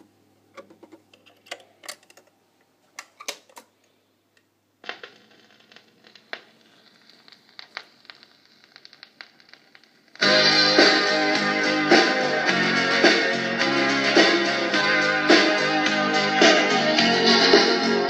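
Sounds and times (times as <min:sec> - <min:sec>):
record changer clicks and clunks: 0:00.0 - 0:02.3
record hiss and crackles: 0:00.0 - 0:18.0.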